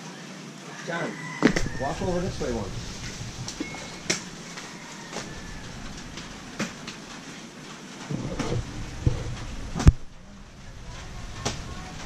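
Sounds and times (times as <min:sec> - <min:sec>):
footsteps knocking in bamboo hut: 0:01.4 - 0:07.2
low rumble: 0:01.6 - 0:07.3, 0:08.1 - 0:12.0.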